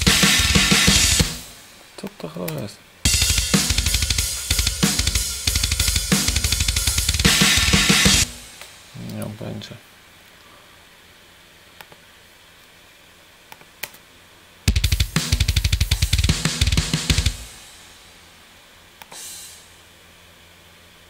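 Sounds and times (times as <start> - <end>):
fast drum pattern: 0.0 - 1.7, 3.1 - 8.6, 14.7 - 17.9.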